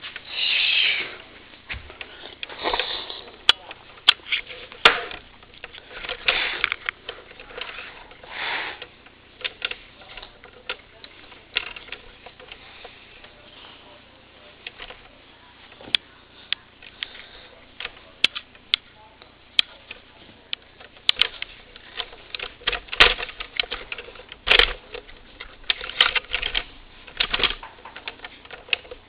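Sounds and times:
person sniffing: 0:00.3 - 0:01.2, 0:02.5 - 0:03.4, 0:08.3 - 0:08.8.

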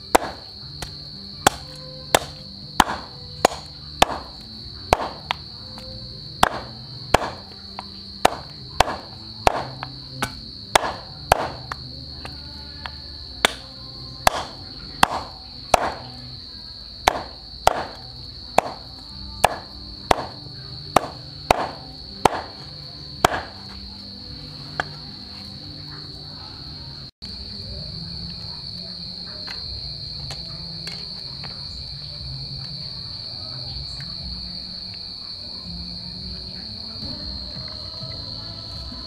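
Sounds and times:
insects droning: 0:00.0 - 0:39.0
cleaver chopping on wooden board: 0:00.2 - 0:00.9, 0:01.5 - 0:04.3, 0:04.9 - 0:05.4, 0:06.4 - 0:11.8, 0:13.4 - 0:13.6, 0:14.3 - 0:16.0, 0:17.1 - 0:18.0, 0:18.6 - 0:18.8, 0:19.4 - 0:20.4, 0:21.0 - 0:22.6, 0:23.2 - 0:23.5.

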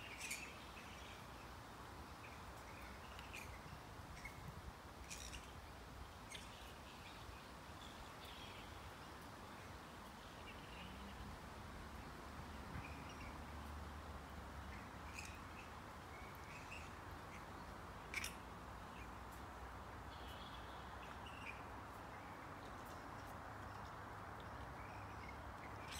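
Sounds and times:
flying foxes squawking and chittering: 0:00.0 - 0:00.6, 0:02.7 - 0:03.6, 0:04.2 - 0:05.6, 0:15.1 - 0:15.7, 0:18.1 - 0:18.4
steady background hiss: 0:00.0 - 0:25.9.

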